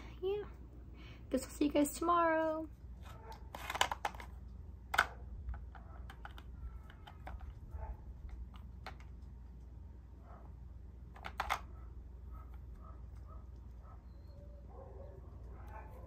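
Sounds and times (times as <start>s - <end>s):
plastic puzzle toy clacking: 3.5s - 7.6s, 11.1s - 11.7s.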